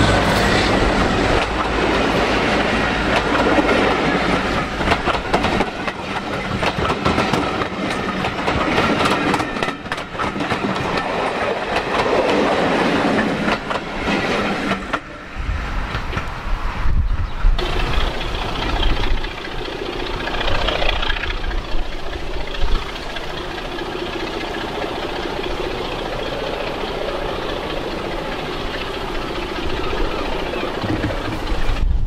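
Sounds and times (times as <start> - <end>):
diesel locomotive engine drone: 0.0 - 32.0.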